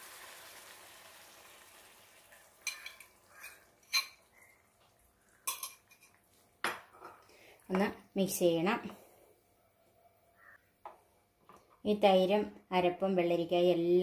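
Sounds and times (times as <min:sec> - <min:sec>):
curry sizzling in a pan: 0:00.0 - 0:06.6
spoon and spatula clinking on pan: 0:02.6 - 0:04.3, 0:05.4 - 0:07.2.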